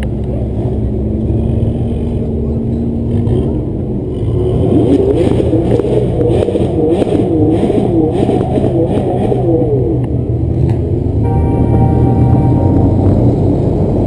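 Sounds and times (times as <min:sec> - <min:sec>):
steady low rumble: 0:11.2 - 0:14.0.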